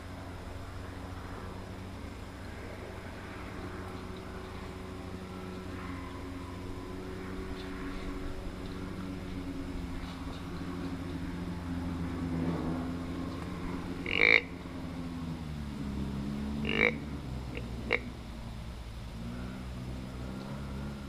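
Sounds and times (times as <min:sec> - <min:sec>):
low hum: 0:00.0 - 0:21.0
raspy animal calls: 0:14.0 - 0:14.6, 0:16.6 - 0:18.1.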